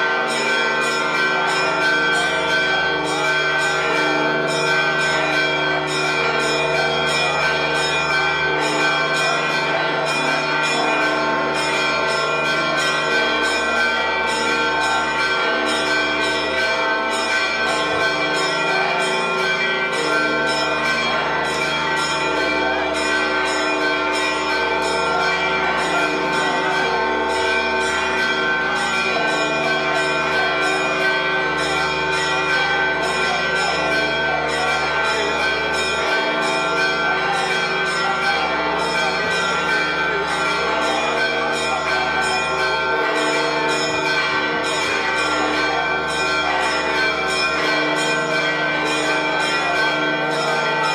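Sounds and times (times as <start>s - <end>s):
church bells pealing: 0.0s - 50.9s.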